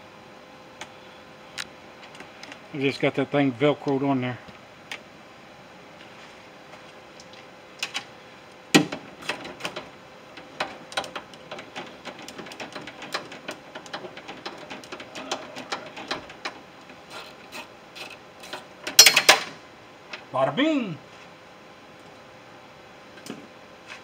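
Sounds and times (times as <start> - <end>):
clicks and metal knocks in car door: 8.8 - 16.6.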